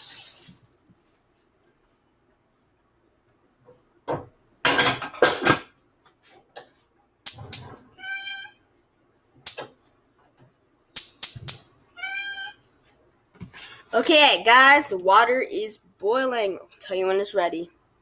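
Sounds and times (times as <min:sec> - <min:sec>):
kitchen items clattering: 0:04.2 - 0:05.8.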